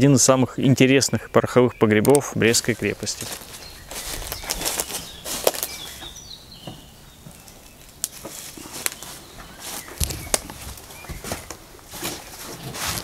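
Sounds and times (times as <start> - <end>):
faint bird chirps: 0.6 - 7.9
footsteps on debris: 2.5 - 13.0.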